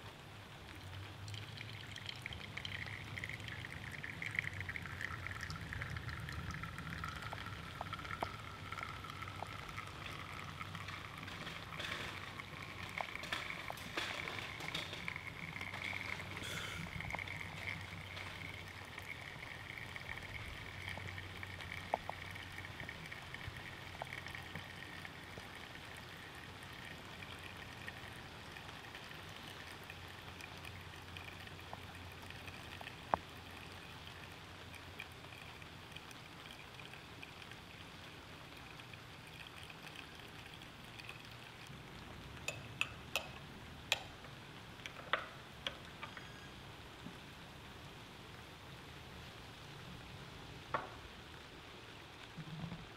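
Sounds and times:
espresso trickling into cup: 0:01.3 - 0:29.2, 0:44.8 - 0:46.6.

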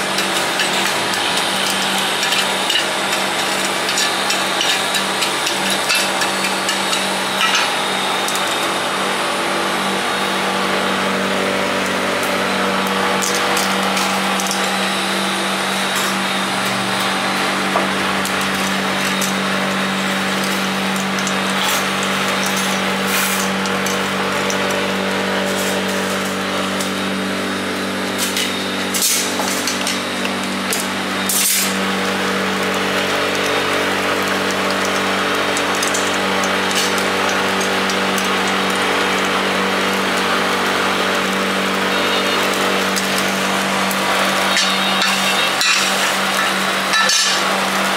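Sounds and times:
fan whirring: 0:00.0 - 0:47.9
steady mechanical hum: 0:00.0 - 0:47.9
metal skewers clinking on grill: 0:00.1 - 0:07.8, 0:44.3 - 0:47.6.

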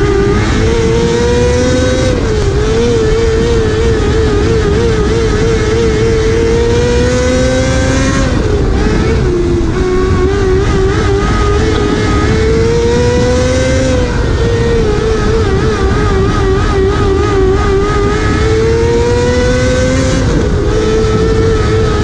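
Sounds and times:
race car engine revving: 0:00.0 - 0:22.0.

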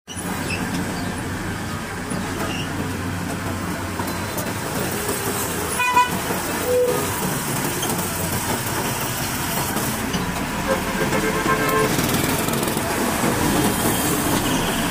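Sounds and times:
excavator diesel engine running: 0:00.1 - 0:14.9
horn toot: 0:10.6 - 0:12.1.

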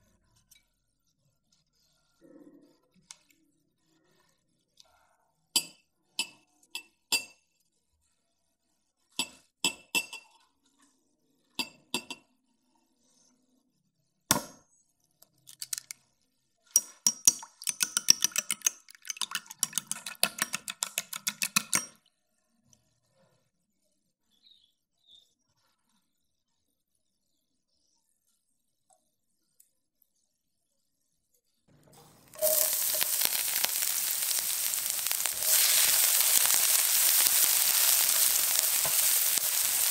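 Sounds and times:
egg cracking on glass bowl: 0:15.4 - 0:15.9, 0:16.8 - 0:22.0, 0:32.3 - 0:39.9
whisk clinking in glass bowl: 0:16.8 - 0:22.0.

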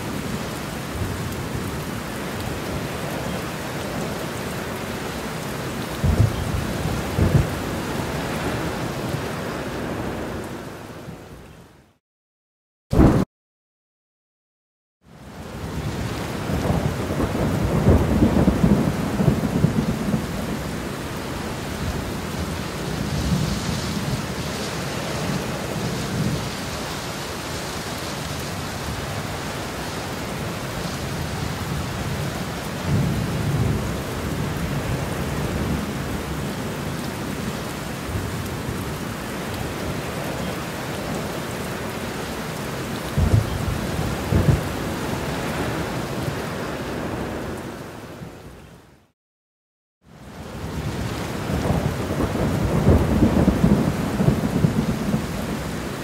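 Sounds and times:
steady rain: 0:00.0 - 0:12.0, 0:15.0 - 0:49.2, 0:50.0 - 0:56.0
rolling thunder: 0:06.0 - 0:07.6, 0:12.9 - 0:13.3, 0:15.8 - 0:20.6, 0:43.1 - 0:45.8, 0:50.6 - 0:55.9
sharp thunder claps: 0:12.9 - 0:13.3.

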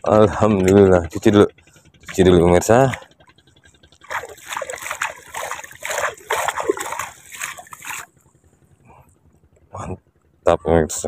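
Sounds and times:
sea water splashing and sloshing: 0:00.8 - 0:08.4.

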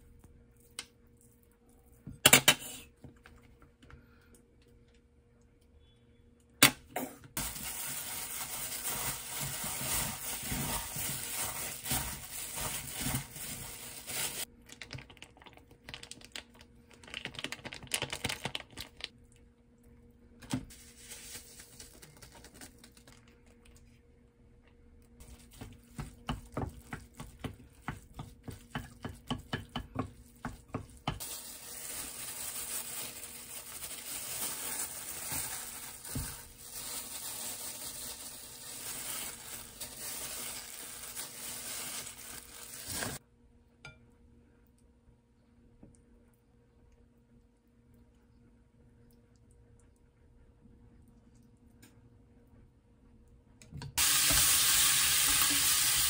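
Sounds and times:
plastic glove crinkling: 0:07.4 - 0:19.2, 0:20.7 - 0:24.0, 0:25.2 - 0:28.6, 0:30.0 - 0:43.2
spoon tapping and scraping pot: 0:26.0 - 0:31.2.

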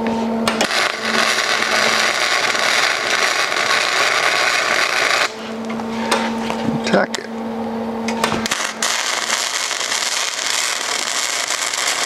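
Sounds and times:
welding arc crackling: 0:00.5 - 0:05.6, 0:08.4 - 0:12.0.

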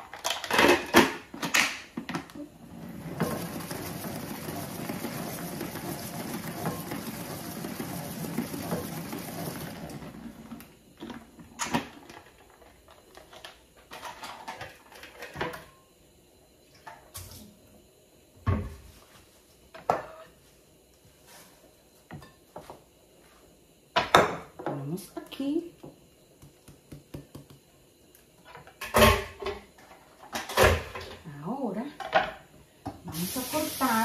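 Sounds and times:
water running from tap: 0:03.0 - 0:10.0, 0:33.1 - 0:34.0.

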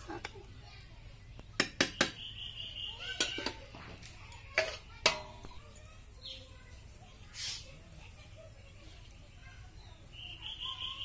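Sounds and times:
metal spatula clanging on pan: 0:03.1 - 0:03.9, 0:04.5 - 0:05.7.

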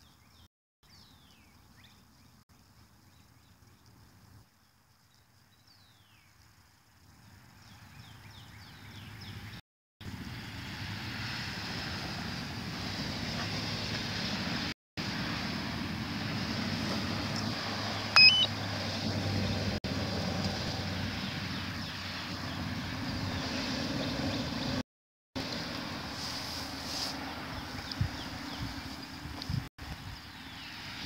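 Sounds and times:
rising electronic beep: 0:18.2 - 0:18.5.

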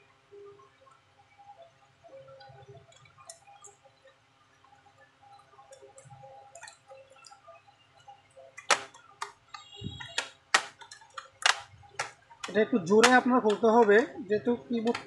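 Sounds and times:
sharp clicks: 0:08.6 - 0:14.0
light tapping and handling noise: 0:14.8 - 0:15.0.

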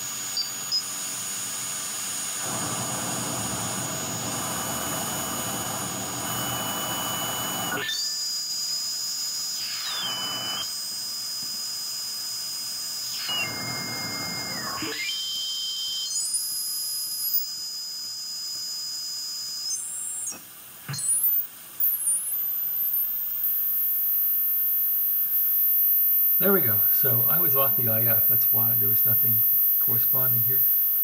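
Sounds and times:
radio hiss: 0:00.0 - 0:07.8, 0:09.6 - 0:10.7, 0:25.3 - 0:31.0
heterodyne whistles: 0:09.6 - 0:10.8, 0:13.1 - 0:17.3.

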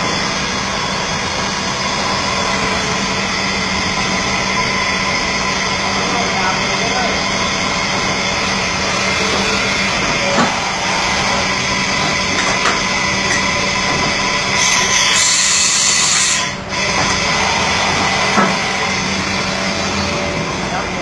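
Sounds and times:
machine spindle hum and whine: 0:00.0 - 0:21.0
loud hiss: 0:14.4 - 0:20.3.

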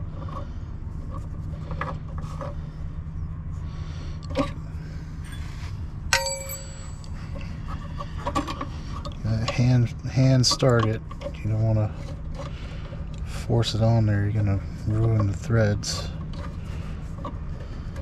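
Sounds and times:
steady low hum: 0:00.0 - 0:18.0
sharp metallic ping: 0:06.1 - 0:07.1.

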